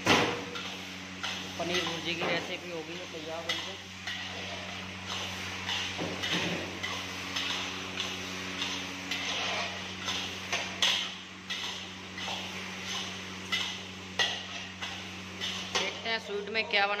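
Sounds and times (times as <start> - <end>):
metal spatula scraping a pan: 3.4 - 16.0.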